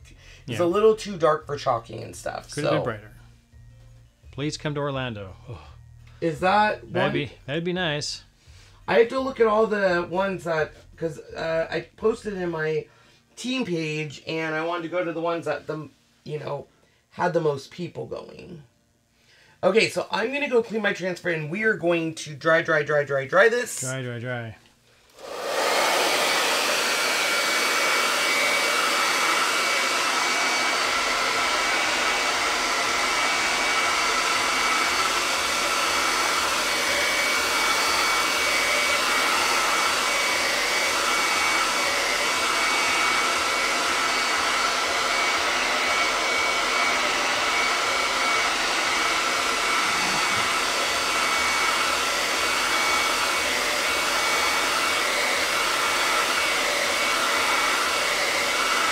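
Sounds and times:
hair dryer running: 0:06.2 - 0:07.2, 0:25.1 - 0:58.9.

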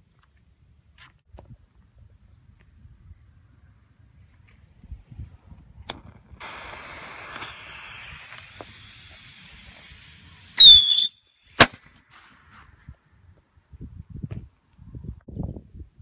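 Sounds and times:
firework click: 0:05.6 - 0:13.0
fuse hissing: 0:06.4 - 0:11.1
firework high whistle: 0:06.4 - 0:11.7.

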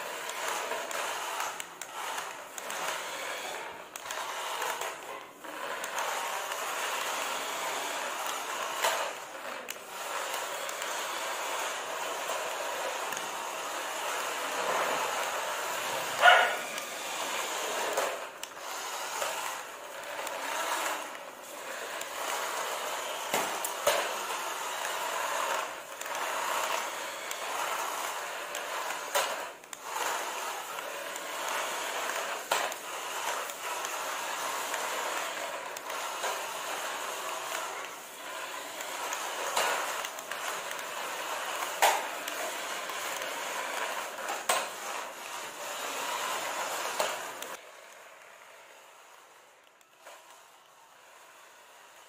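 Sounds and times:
plastic wheels rolling on stone: 0:00.0 - 0:47.6
toy car motors whirring: 0:00.0 - 0:52.0.

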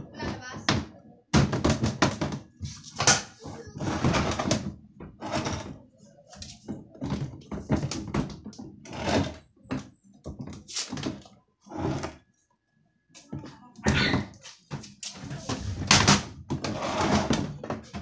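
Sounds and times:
plastic cabinet scraping: 0:01.5 - 0:05.8, 0:06.7 - 0:09.5, 0:10.8 - 0:12.2, 0:15.2 - 0:18.0.

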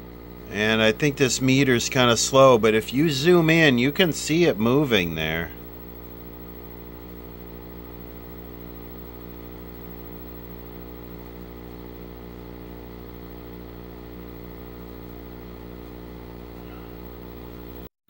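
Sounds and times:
electrical mains hum: 0:00.0 - 0:17.9.

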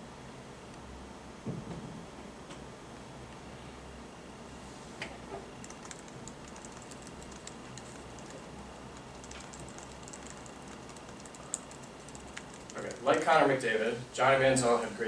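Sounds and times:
low room hum: 0:00.0 - 0:15.0
laptop keyboard typing: 0:05.6 - 0:13.2.

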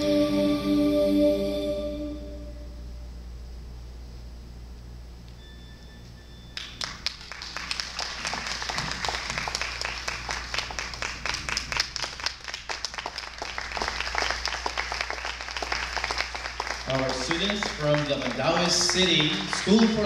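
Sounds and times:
audience applause: 0:06.6 - 0:20.0.

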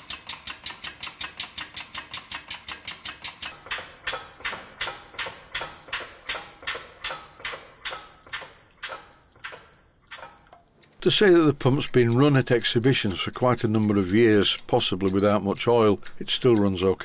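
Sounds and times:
steam feed pump strokes: 0:00.0 - 0:03.5.

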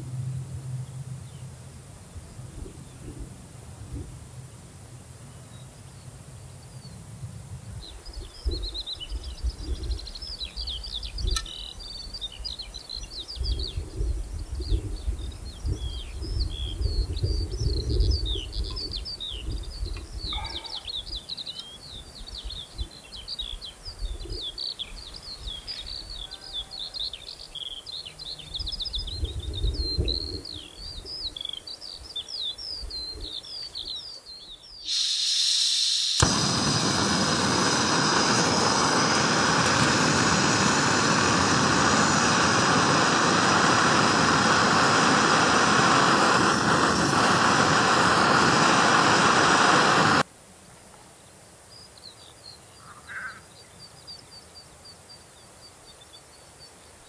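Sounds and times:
songbirds chirping: 0:00.5 - 0:03.4, 0:04.4 - 0:34.9, 0:51.2 - 0:57.0
loud rushing hiss: 0:34.8 - 0:50.3.

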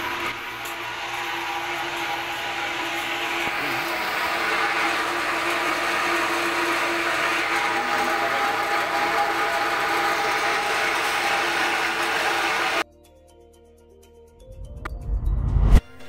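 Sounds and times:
electric water pump whining: 0:00.0 - 0:12.8.

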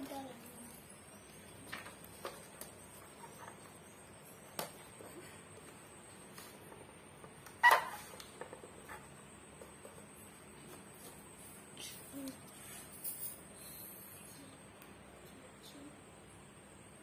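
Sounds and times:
paper rustling and taps: 0:01.6 - 0:03.8.

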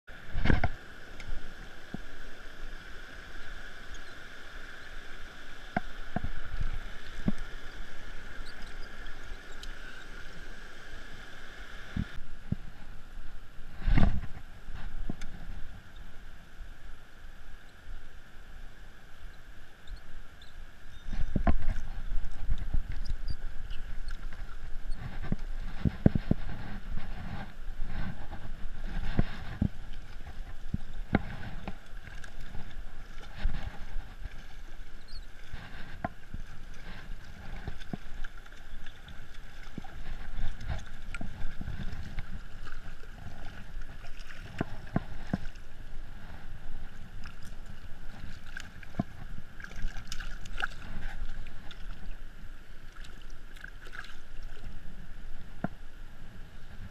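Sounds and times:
river water over rocks: 0:00.1 - 0:56.9
camera knocking and rubbing: 0:24.2 - 0:31.8.

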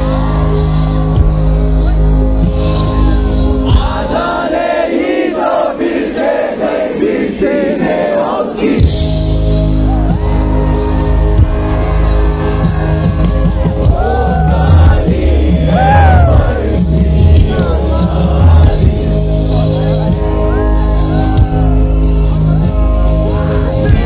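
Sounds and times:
live band with heavy bass: 0:00.0 - 0:04.8, 0:08.6 - 0:24.0
person singing: 0:13.7 - 0:24.0.

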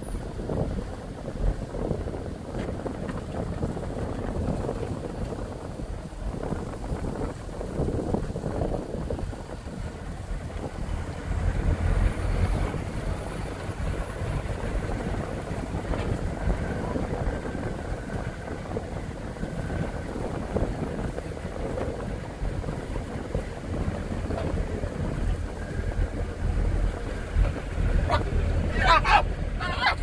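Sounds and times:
jeep engine rumbling: 0:00.0 - 0:30.0
wind buffeting microphone: 0:00.0 - 0:30.0.

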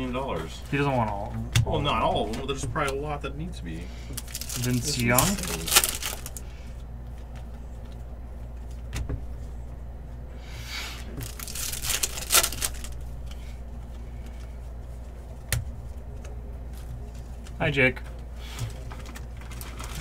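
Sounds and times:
steady low hum: 0:00.0 - 0:20.0
wrappers rustling: 0:04.1 - 0:06.5, 0:11.2 - 0:15.4, 0:18.4 - 0:20.0.

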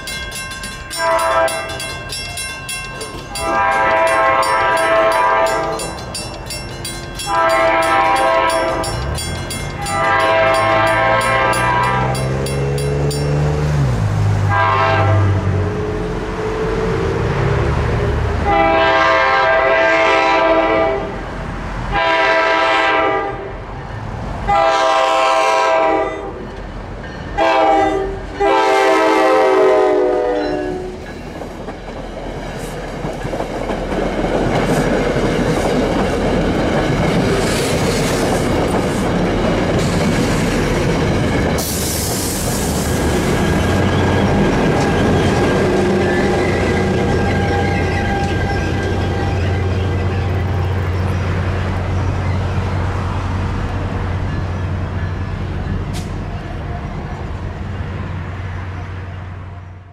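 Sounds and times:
train wheels rumbling and clicking: 0:00.0 - 0:14.6, 0:26.4 - 0:27.4, 0:30.4 - 0:58.0
locomotive horn blasts: 0:00.9 - 0:01.9, 0:03.3 - 0:05.9, 0:07.2 - 0:09.0, 0:09.8 - 0:12.4, 0:14.5 - 0:15.6, 0:18.4 - 0:21.2, 0:21.9 - 0:23.6, 0:24.5 - 0:26.4, 0:27.4 - 0:31.0
short air hiss: 0:41.6 - 0:42.9.

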